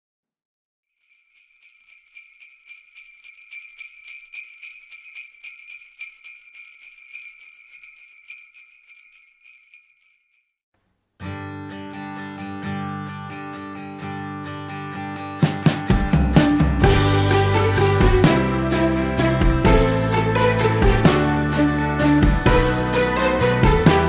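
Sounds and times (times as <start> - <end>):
jingle bells shaken: 1.0 - 10.6
guitar music: 11.2 - 24.0.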